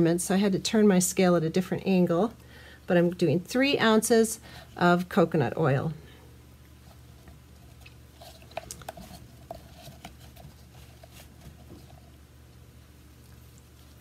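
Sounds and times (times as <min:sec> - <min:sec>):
low steady hum: 0:00.0 - 0:14.0
scraping and squishing oil: 0:06.7 - 0:12.2.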